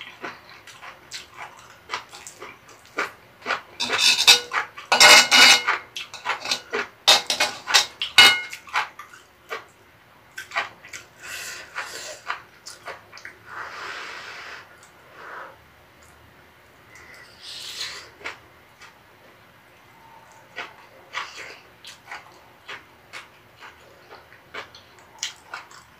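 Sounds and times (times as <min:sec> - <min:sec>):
metal spoon scraping a pan: 0:03.8 - 0:08.6.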